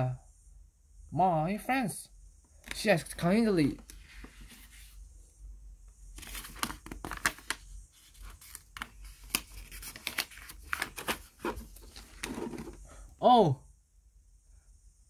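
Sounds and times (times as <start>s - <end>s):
paper pages rustling and crackling: 6.1s - 12.8s.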